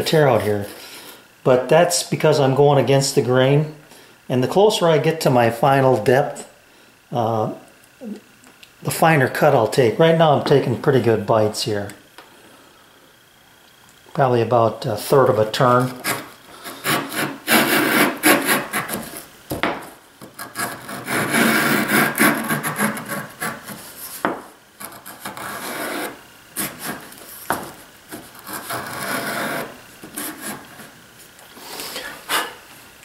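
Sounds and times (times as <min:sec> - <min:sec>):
router plane scraping wood: 0:15.1 - 0:19.3, 0:20.3 - 0:31.0.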